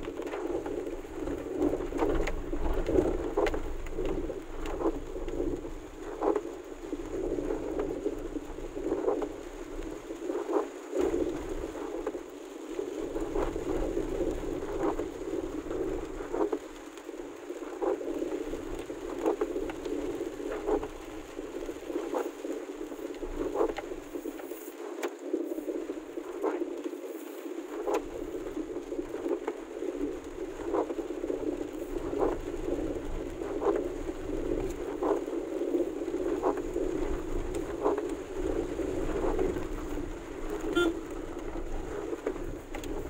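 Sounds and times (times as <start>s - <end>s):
rain falling on a car: 0.0s - 43.0s
windshield wipers sweeping: 36.4s - 43.0s.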